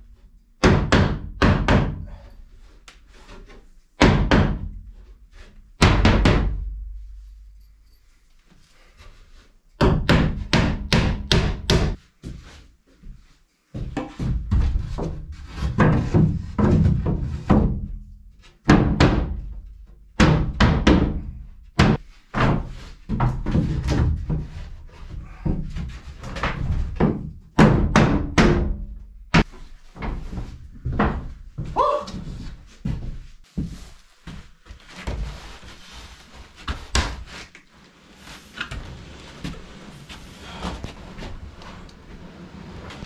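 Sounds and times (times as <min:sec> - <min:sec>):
hammer on plywood walls: 0:00.6 - 0:02.2, 0:04.0 - 0:04.9, 0:05.8 - 0:06.9, 0:09.8 - 0:12.0, 0:13.8 - 0:18.0, 0:18.6 - 0:19.6, 0:20.2 - 0:24.6, 0:25.2 - 0:30.1.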